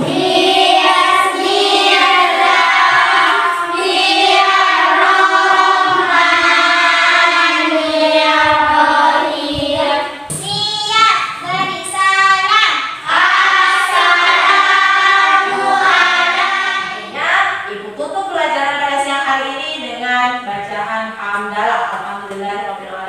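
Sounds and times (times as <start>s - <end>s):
children singing in unison: 0.0s - 10.6s, 11.2s - 17.2s.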